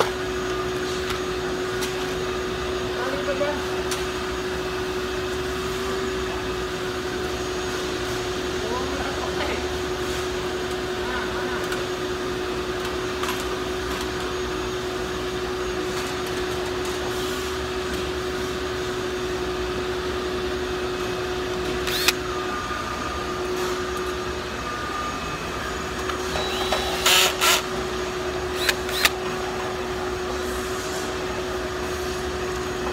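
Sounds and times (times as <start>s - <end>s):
steady machine hum: 0.0s - 32.9s
cordless drill whirring: 21.3s - 23.0s, 24.6s - 29.4s.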